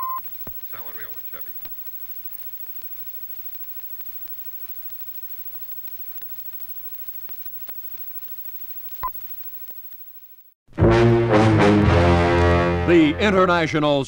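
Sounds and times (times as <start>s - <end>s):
short high beep: 0.0s - 1.6s
film soundtrack hiss: 0.2s - 10.4s
clicks and crackles: 0.2s - 10.5s.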